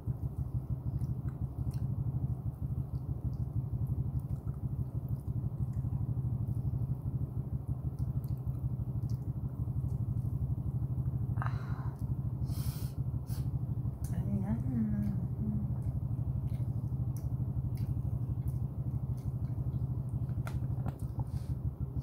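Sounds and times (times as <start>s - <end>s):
low rumbling hum: 0.0s - 22.0s
person chewing: 15.8s - 21.2s.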